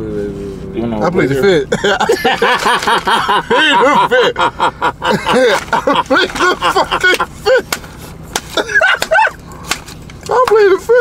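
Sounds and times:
man laughing: 0:01.6 - 0:07.8, 0:08.5 - 0:09.6
hand claps: 0:07.0 - 0:09.2.

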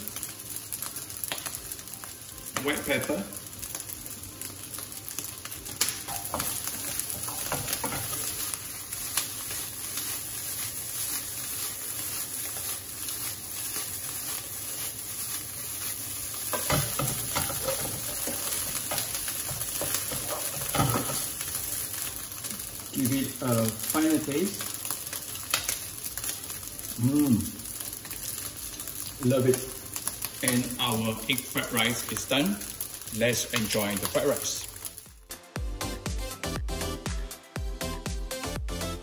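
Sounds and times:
rice sizzling in a pan: 0:00.0 - 0:36.6
spatula scraping and knocking pan: 0:06.0 - 0:14.9, 0:15.8 - 0:22.1.

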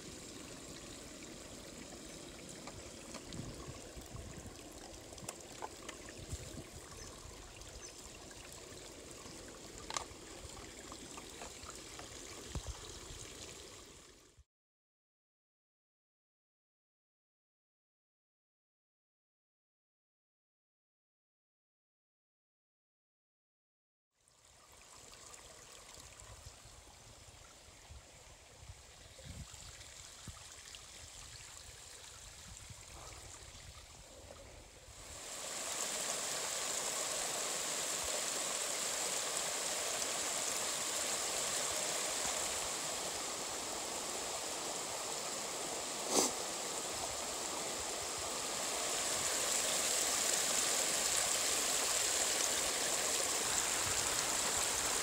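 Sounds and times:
mountain creek rushing: 0:00.0 - 0:14.2, 0:34.9 - 0:55.0.

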